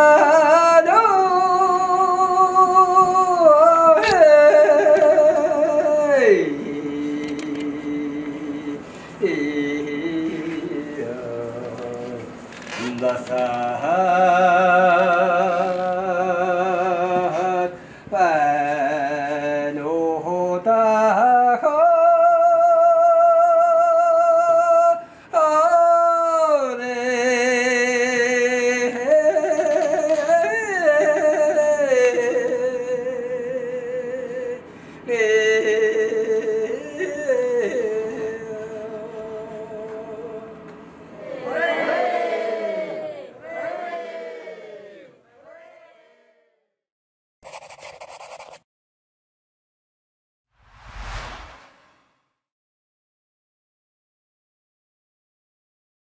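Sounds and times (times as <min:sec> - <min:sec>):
person singing slow melody: 0:00.0 - 0:40.7
singer breathing: 0:17.8 - 0:18.2, 0:25.0 - 0:25.4, 0:34.7 - 0:35.1.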